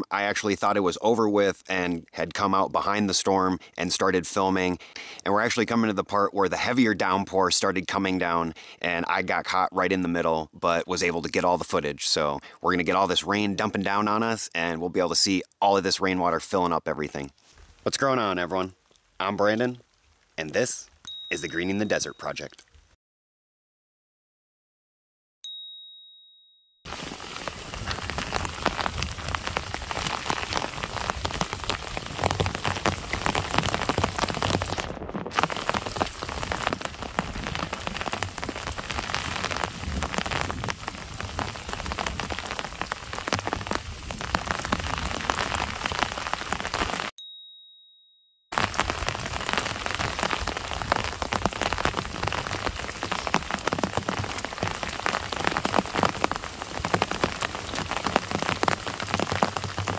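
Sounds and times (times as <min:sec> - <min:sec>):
heavy rain on wet ground: 0:18.6 - 0:21.0, 0:26.9 - 0:47.1, 0:48.5 - 0:59.9.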